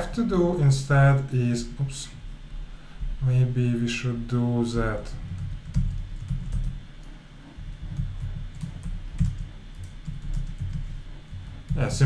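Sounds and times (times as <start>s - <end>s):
computer keyboard typing: 5.2s - 7.2s, 7.8s - 12.0s.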